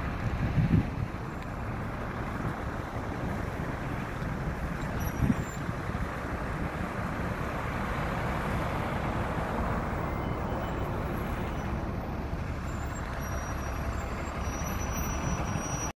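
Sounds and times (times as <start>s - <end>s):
wind buffeting microphone: 0.0s - 12.6s
heavy road traffic: 0.0s - 16.0s.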